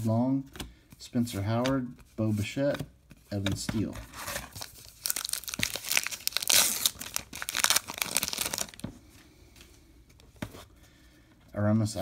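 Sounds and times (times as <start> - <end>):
wrapper tearing and crinkling: 4.2 - 8.8.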